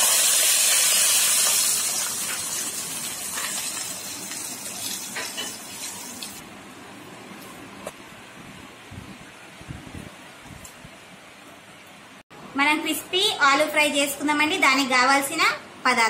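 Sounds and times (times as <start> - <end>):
hot oil sizzling: 0.0 - 6.4.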